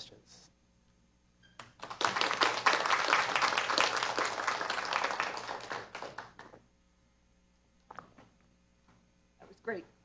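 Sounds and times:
audience applauding: 1.6 - 6.6.

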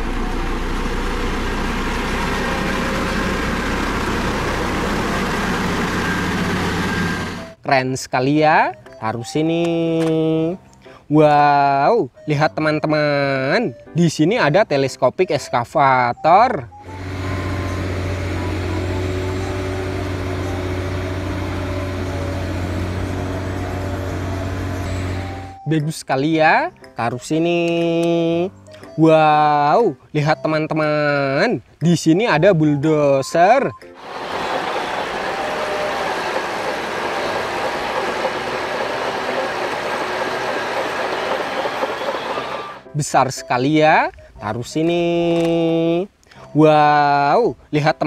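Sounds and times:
crane diesel engine humming: 0.0 - 7.6, 16.7 - 25.7, 34.0 - 42.9.

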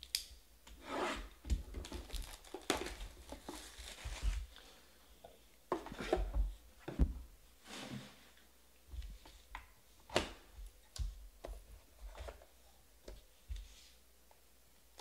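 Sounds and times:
cardboard box sliding and scraping: 0.8 - 1.3, 7.6 - 8.4
plastic wrap crinkling and tearing: 1.8 - 4.4.

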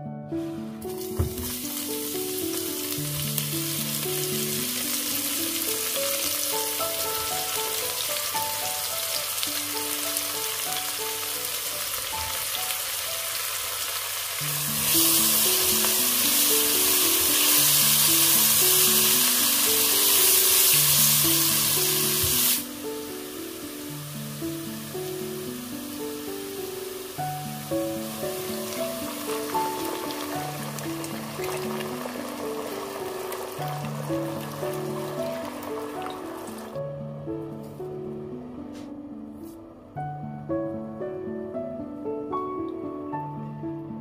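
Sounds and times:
vegetables sizzling in hot oil: 0.9 - 36.8.

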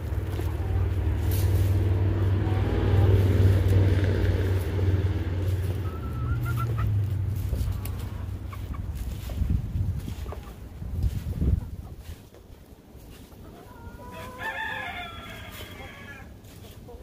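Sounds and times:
low rumble: 0.0 - 11.6
chickens clucking: 0.0 - 17.0.

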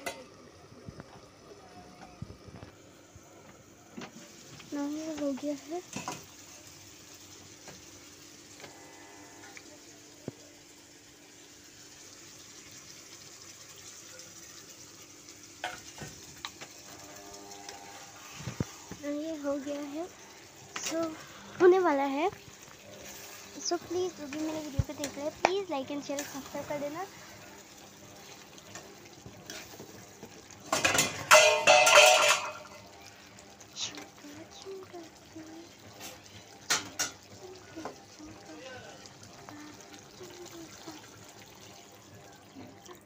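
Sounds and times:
water pouring and splashing: 3.9 - 43.0
spatula scraping a pan: 29.4 - 30.0, 31.1 - 32.8.

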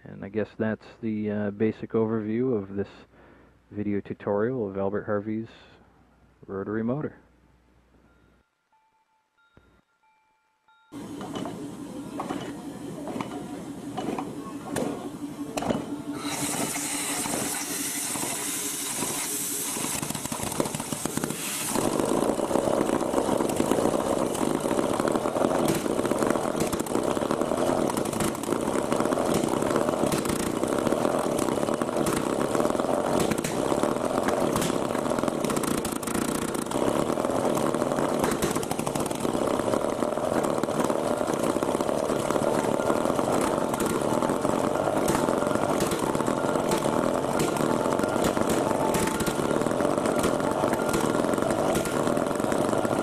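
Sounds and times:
rotary engine running: 10.9 - 53.0.

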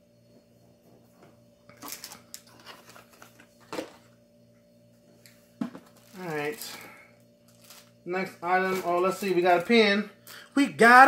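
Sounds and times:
faint steady hum: 0.0 - 11.0
packaging rustling and clicking: 1.7 - 4.0, 7.5 - 7.9.

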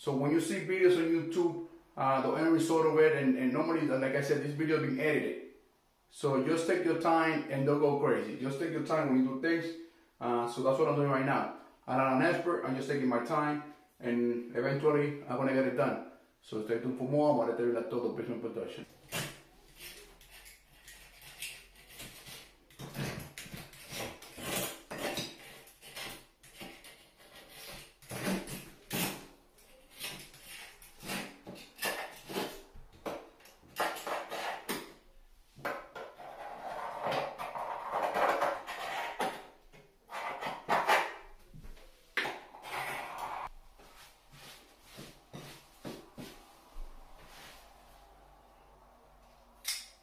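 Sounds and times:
knife scraping caulk: 19.0 - 32.6, 33.8 - 34.9.

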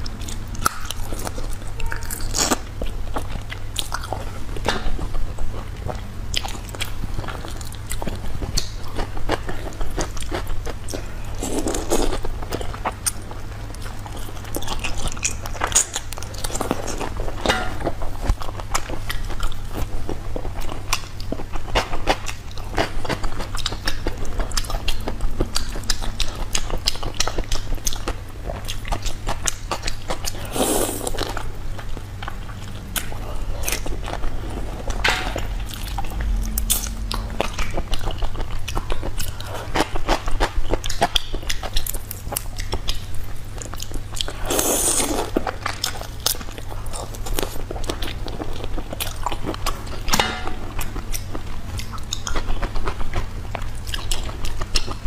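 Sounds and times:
wet chewing and sucking: 0.0 - 50.2
low steady hum: 0.0 - 55.0.

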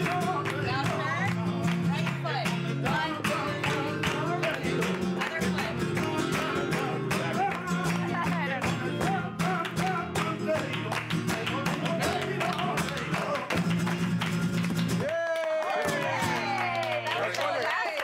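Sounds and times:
man singing: 0.0 - 13.9
flamenco guitar strumming: 0.0 - 15.1, 15.7 - 17.3
hands clapping: 0.0 - 18.0.

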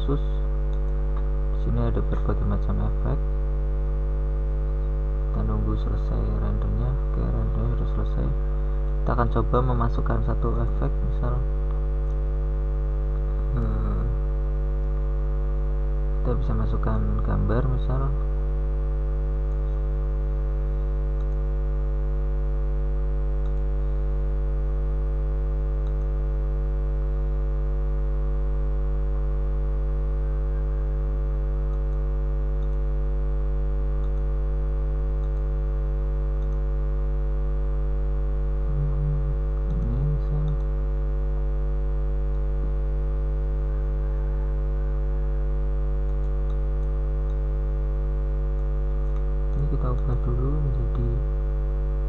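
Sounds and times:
electrical mains hum: 0.0 - 52.0
brief low sound: 38.7 - 40.6.

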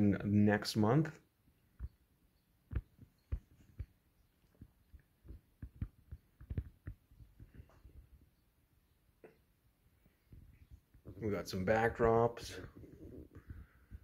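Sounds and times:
soft thumps and clicks: 1.8 - 2.0, 2.7 - 8.3, 12.0 - 14.0.

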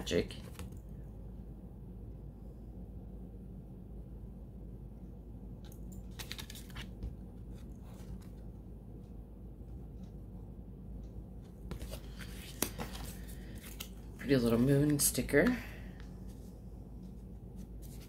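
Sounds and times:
card handling clicks and scratches: 6.0 - 8.4, 11.7 - 15.1.

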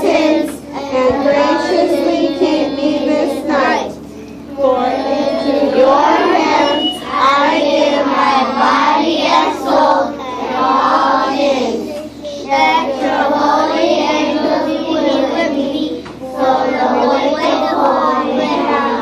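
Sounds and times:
children reciting in unison: 0.0 - 19.0.

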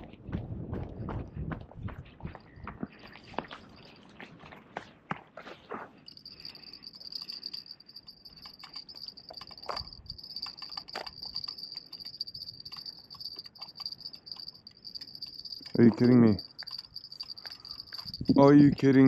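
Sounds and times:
soft footsteps: 0.0 - 6.3
cricket trilling: 6.1 - 19.0
sharp clicks: 6.6 - 18.3.

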